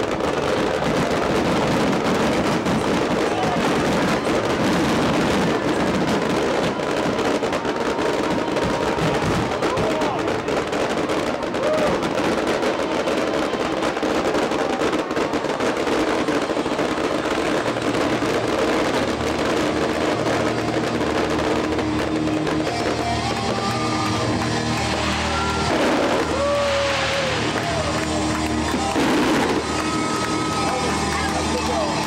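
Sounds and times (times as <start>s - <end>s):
fireworks crackling and popping: 0.0s - 32.0s
music playing: 17.8s - 32.0s.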